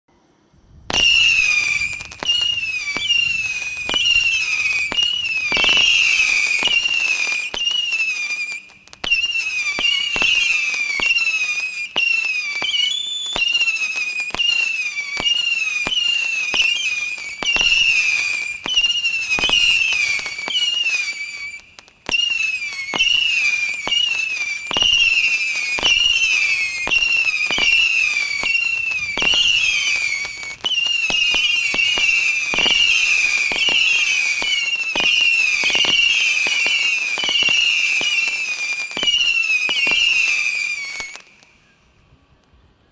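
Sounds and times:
fireworks whistling: 0:00.2 - 0:42.9
fireworks cracks: 0:00.8 - 0:41.7.

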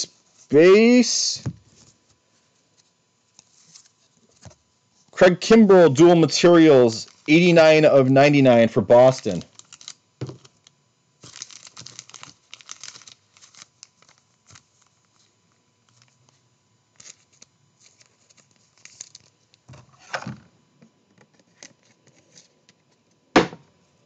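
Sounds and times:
wrappers rustling and crinkling: 0:07.0 - 0:07.3, 0:09.0 - 0:19.7.

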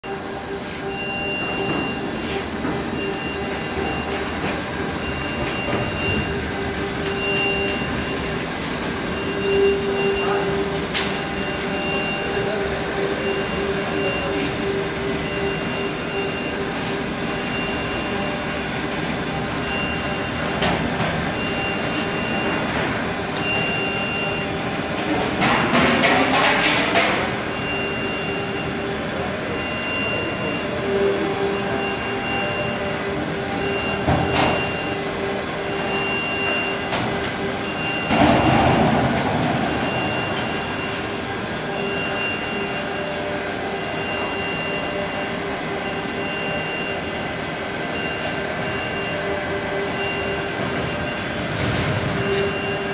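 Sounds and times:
embossing machine humming: 0:00.0 - 0:52.9
pulsing high tone: 0:27.1 - 0:52.9.

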